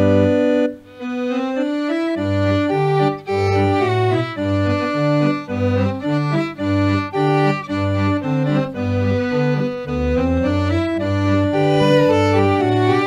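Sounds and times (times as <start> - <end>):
organ-like keyboard playing hymn: 0.0 - 13.0.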